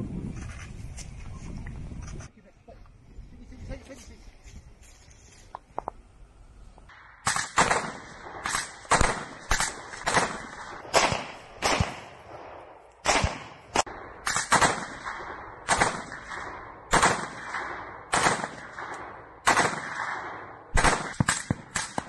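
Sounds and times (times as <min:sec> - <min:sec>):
assault rifle gunfire: 0:06.9 - 0:22.0.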